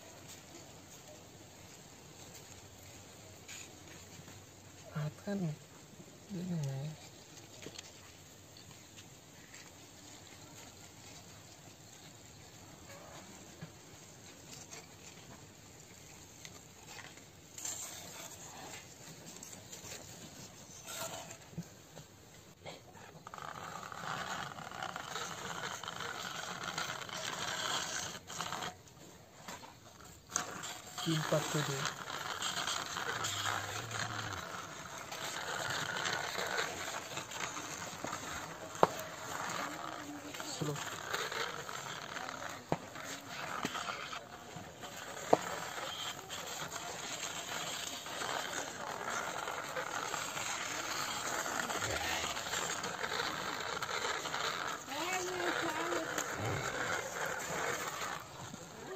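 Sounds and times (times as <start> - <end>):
toy car motor whirring: 3.5 - 4.1, 14.4 - 21.7, 23.0 - 58.9.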